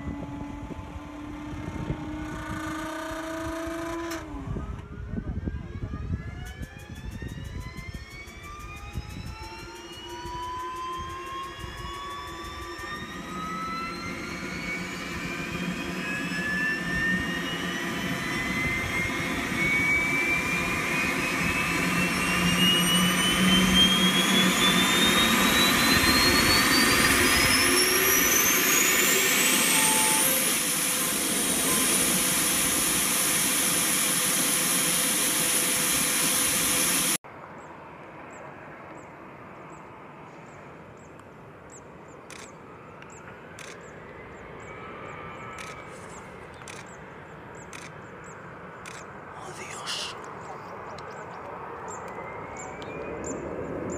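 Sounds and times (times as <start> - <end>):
gas turbine whine: 0.0 - 37.2, 39.2 - 53.9.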